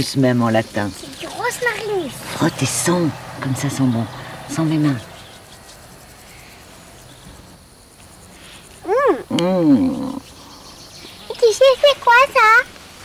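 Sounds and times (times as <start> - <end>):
child making vocal sounds: 1.0 - 2.3, 8.8 - 10.2
man making vocal sounds: 8.8 - 10.3.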